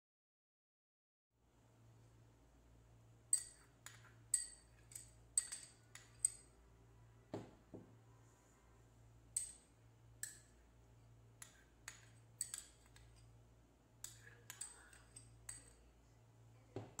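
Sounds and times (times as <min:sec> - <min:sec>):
metal spoon clinking on bowl: 0:03.3 - 0:06.6, 0:09.3 - 0:10.6, 0:11.4 - 0:13.4, 0:14.0 - 0:15.8.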